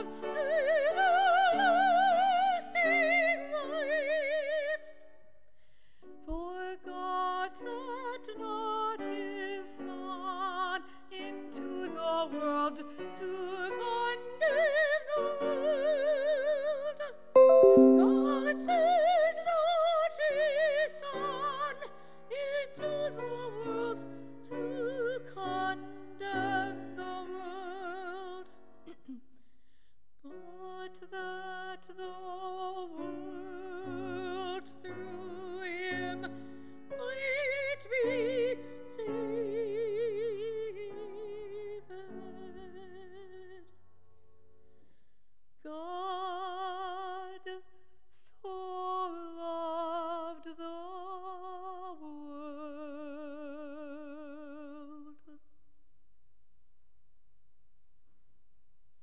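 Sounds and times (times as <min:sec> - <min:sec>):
woman singing a hymn: 0:00.0 - 0:04.9, 0:06.3 - 0:28.5, 0:30.3 - 0:36.4, 0:37.0 - 0:43.7, 0:45.6 - 0:55.4
piano chords: 0:17.4 - 0:19.3.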